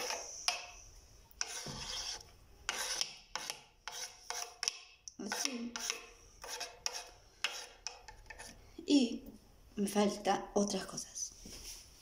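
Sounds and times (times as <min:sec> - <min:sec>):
knife scraping wooden cutting board: 0:01.4 - 0:04.7, 0:05.3 - 0:08.6.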